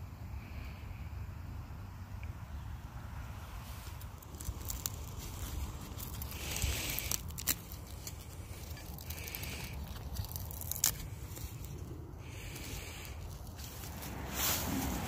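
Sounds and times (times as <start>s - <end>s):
low wind rumble: 0.0s - 15.0s
dry seed pod crackling and rustling: 3.4s - 15.0s.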